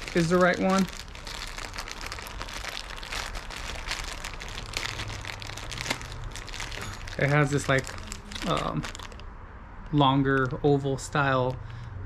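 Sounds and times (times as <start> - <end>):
plastic bag crinkling: 0.0 - 9.2.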